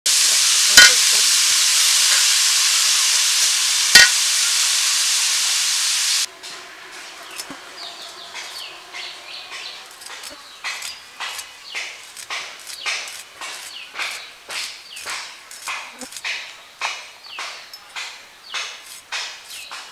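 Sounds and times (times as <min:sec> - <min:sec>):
vegetables sizzling in hot oil: 0:00.1 - 0:06.3
knife slicing vegetable: 0:09.8 - 0:16.4.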